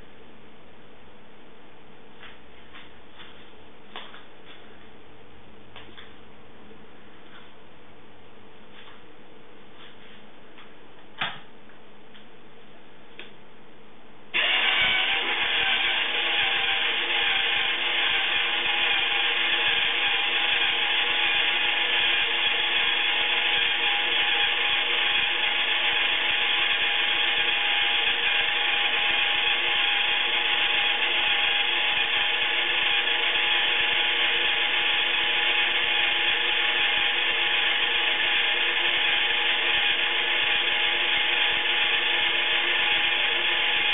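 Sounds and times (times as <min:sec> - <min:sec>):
small motor whirring hum: 0:14.4 - 0:43.9.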